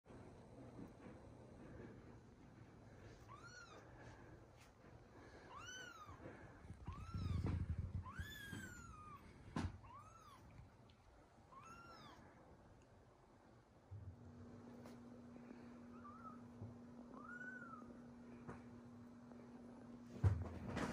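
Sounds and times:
kitten meowing: 3.3 - 3.8, 6.8 - 10.6, 11.5 - 12.2, 17.2 - 17.9.

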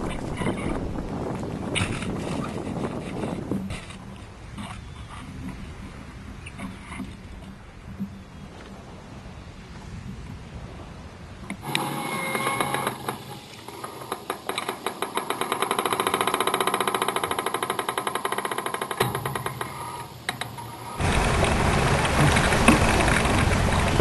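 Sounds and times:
wind rushing: 0.0 - 3.9
water breaking alongside boat: 0.0 - 24.0
fast mechanical clicking: 11.6 - 24.0.

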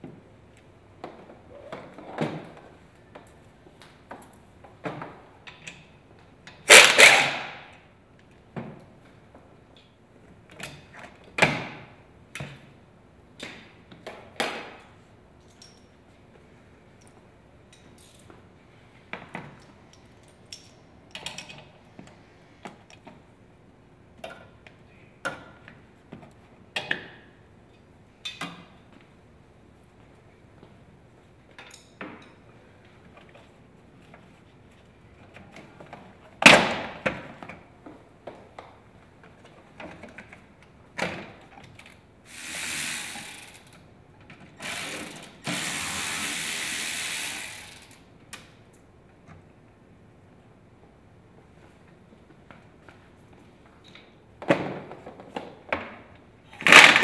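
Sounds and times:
ratchet wrench: 6.7 - 7.3, 42.3 - 43.8, 44.6 - 48.0.

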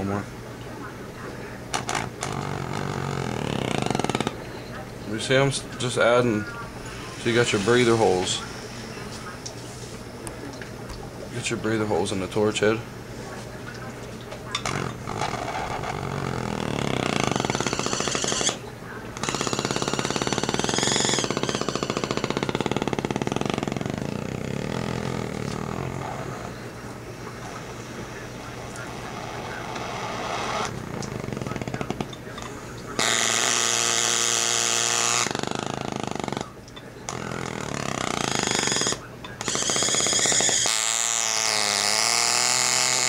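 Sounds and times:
torch flame hissing: 6.8 - 9.3
torch flame fluttering: 14.6 - 18.6.

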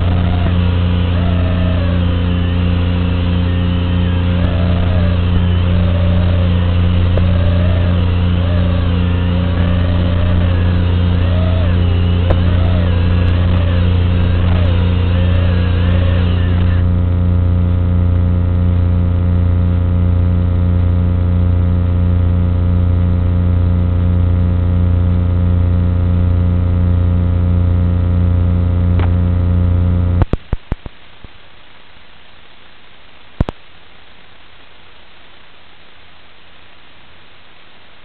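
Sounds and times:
drone motors whining: 0.0 - 17.4
static hiss: 0.0 - 21.5, 28.9 - 38.0
low electrical buzz: 0.0 - 38.0.

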